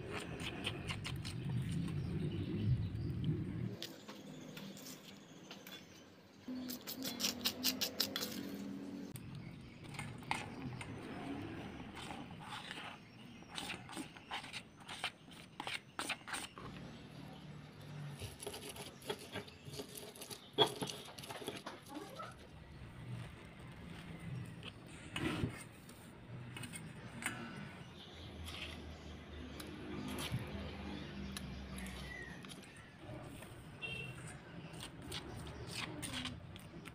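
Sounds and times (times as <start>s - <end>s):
gritty scraping: 6.8s - 36.9s.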